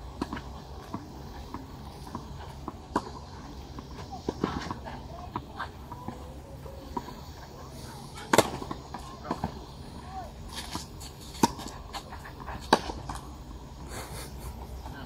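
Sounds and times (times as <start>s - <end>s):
tennis ball bouncing: 0.1s - 13.4s
racket striking tennis ball: 8.1s - 9.5s, 10.5s - 13.3s.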